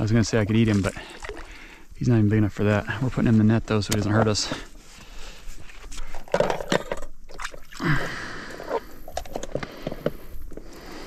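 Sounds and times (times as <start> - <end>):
water splashing and sloshing: 0.0 - 3.4, 5.6 - 10.8.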